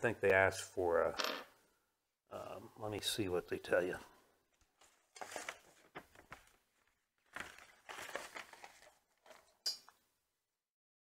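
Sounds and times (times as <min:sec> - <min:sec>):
paper booklet rustling: 0:04.5 - 0:09.6.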